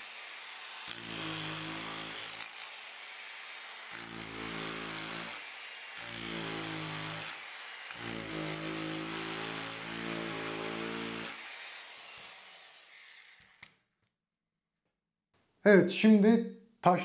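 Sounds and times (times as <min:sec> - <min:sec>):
grinder motor running: 0:00.0 - 0:13.6
power chisel hammering wood: 0:00.8 - 0:02.8, 0:03.8 - 0:11.4.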